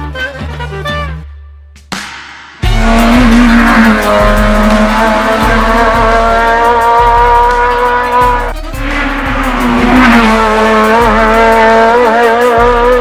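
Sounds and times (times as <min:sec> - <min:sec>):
race car engine at high revs: 0:02.7 - 0:13.0.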